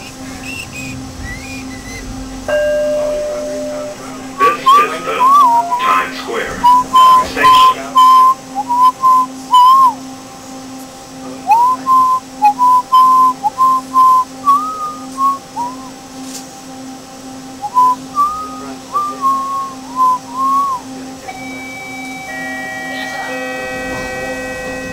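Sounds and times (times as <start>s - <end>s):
low pulse: 0.0s - 24.9s
person whistling a tune: 0.4s - 2.1s, 4.4s - 6.0s, 6.6s - 10.0s, 11.4s - 15.9s, 17.6s - 22.2s.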